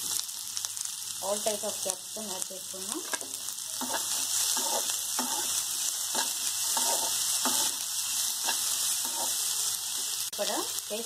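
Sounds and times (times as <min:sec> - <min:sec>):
vegetables sizzling in hot oil: 0:00.0 - 0:11.0
metal spatula scraping pan: 0:03.0 - 0:09.5.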